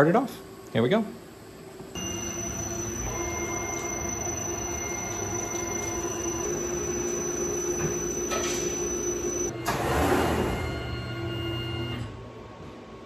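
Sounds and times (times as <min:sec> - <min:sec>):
lathe cutting whine: 0:02.0 - 0:09.8.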